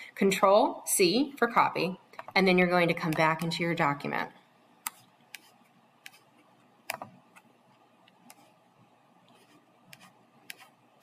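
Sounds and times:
faint room hiss: 0.0 - 11.0
computer mouse clicks: 4.8 - 6.2, 6.8 - 8.5, 9.2 - 10.8.

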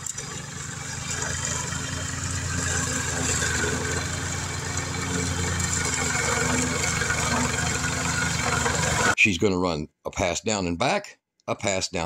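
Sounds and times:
lawn mower cutting grass: 0.0 - 9.2.

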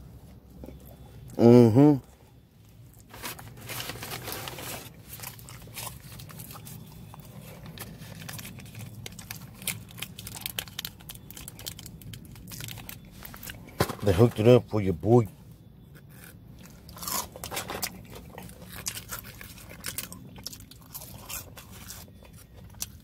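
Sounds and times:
rustle of paper and plastic bags: 3.0 - 14.6.

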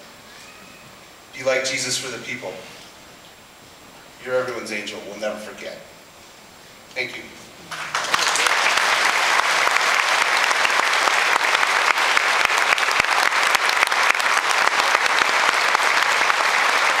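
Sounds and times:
audience applauding: 7.7 - 17.0.

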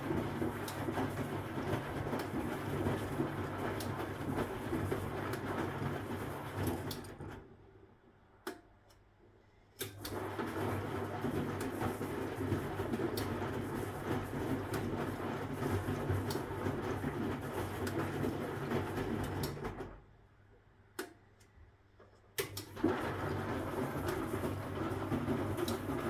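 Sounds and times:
laundry sloshing in drum: 0.0 - 7.4, 10.1 - 19.9, 22.7 - 26.0
washing machine motor humming: 0.0 - 7.6, 9.9 - 20.0, 22.4 - 26.0.

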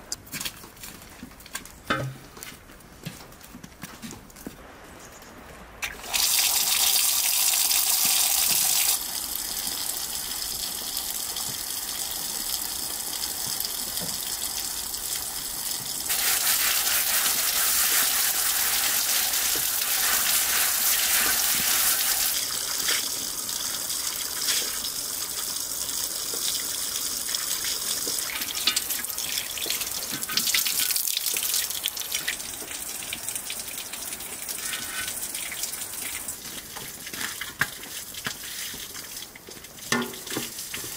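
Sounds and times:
water gushing from tap: 6.0 - 32.8.

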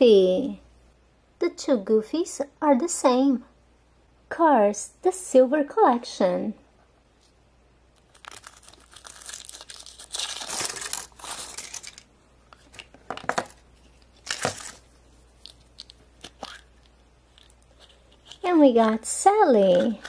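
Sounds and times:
foil wrapper crinkling and tearing: 8.0 - 18.6.

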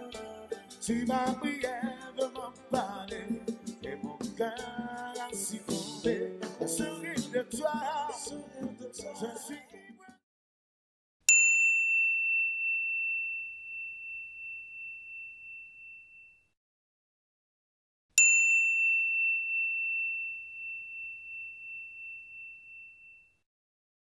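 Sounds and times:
small bell ding: 11.3 - 16.6, 18.2 - 23.4.

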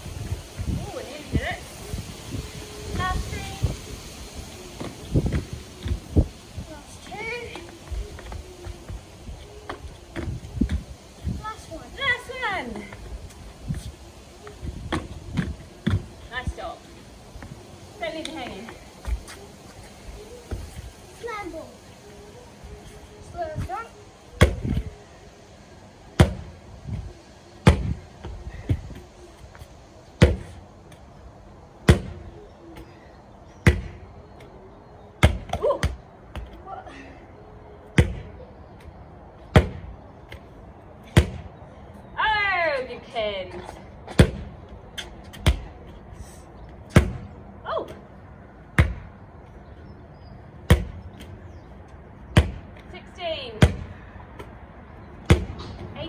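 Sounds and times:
medicine ball thuds: 24.4 - 24.8, 26.2 - 26.5, 27.6 - 28.0, 30.2 - 30.6, 31.8 - 32.2, 33.6 - 34.0, 38.0 - 38.3, 39.5 - 40.4, 41.1 - 41.5, 44.1 - 44.5, 45.3 - 45.7, 46.9 - 47.3, 48.8 - 49.1, 50.6 - 51.3, 52.3 - 52.7, 53.6 - 53.9, 55.2 - 55.8
medicine ball thudding on decking: 30.2 - 30.5, 50.7 - 51.0.

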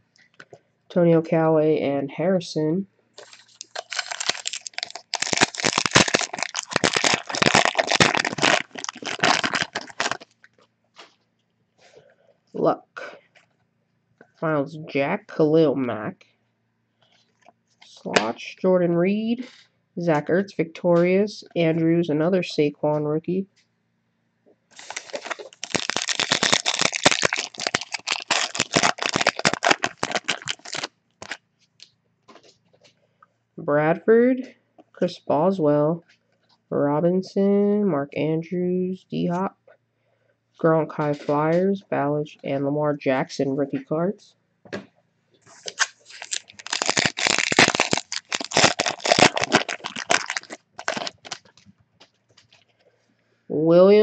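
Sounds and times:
foil wrapper crinkling: 3.2 - 10.6, 24.8 - 31.4, 45.5 - 51.7.

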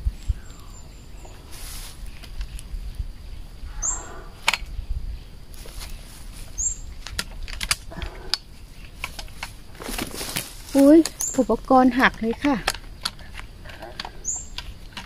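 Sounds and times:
leaves rustling: 0.0 - 15.0
loppers snapping branches: 7.0 - 15.0.

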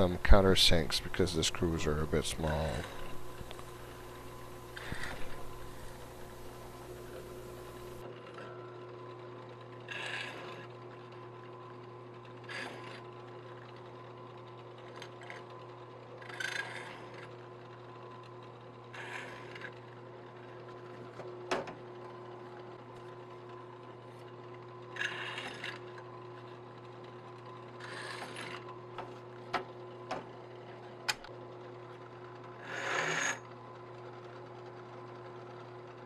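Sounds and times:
drill press motor running: 0.0 - 8.1.

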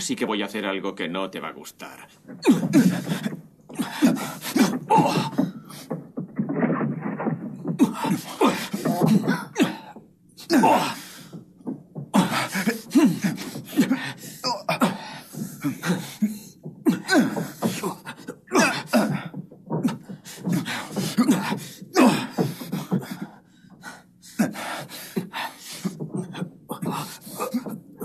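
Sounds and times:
men grunting and shouting: 2.4 - 6.1, 7.7 - 11.4, 12.0 - 23.3, 24.3 - 28.0
punch and scuffle impacts: 2.4 - 23.3.

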